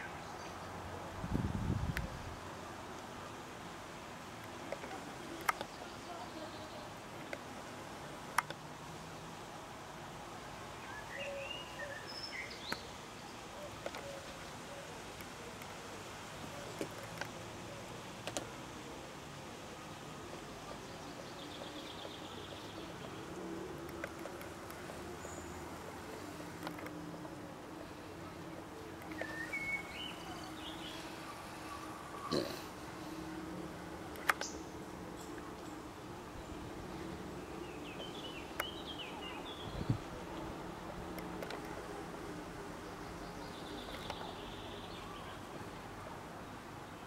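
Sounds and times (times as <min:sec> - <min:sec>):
sharp clicks: 0:34.1 - 0:34.6.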